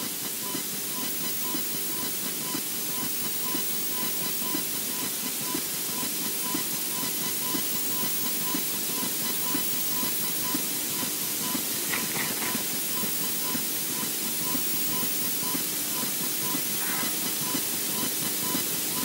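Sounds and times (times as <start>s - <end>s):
electrical interference hiss: 9.3s - 18.9s.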